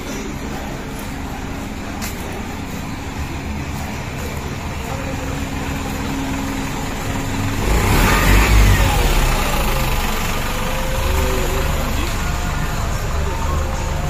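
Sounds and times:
vehicle engine running: 0:00.0 - 0:14.0.

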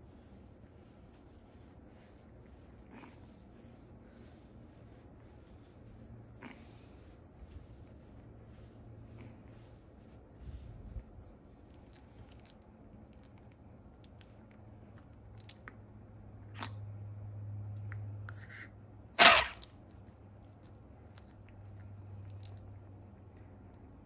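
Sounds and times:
low steady hum: 0:00.0 - 0:24.0
dog sneezing: 0:18.4 - 0:19.8.

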